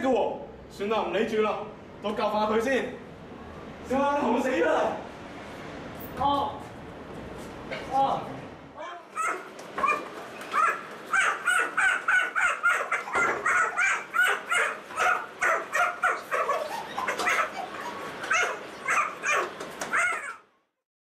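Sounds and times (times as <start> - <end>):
high-pitched yelps: 9.1 - 20.4.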